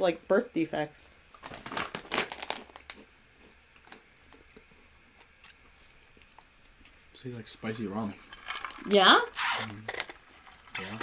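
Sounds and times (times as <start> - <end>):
chip bag rustling and crackling: 1.4 - 3.0.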